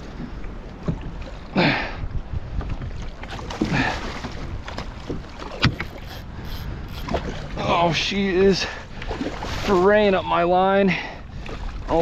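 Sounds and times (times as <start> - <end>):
wind rumble on microphone: 0.0 - 12.0
water splashes: 2.9 - 12.0.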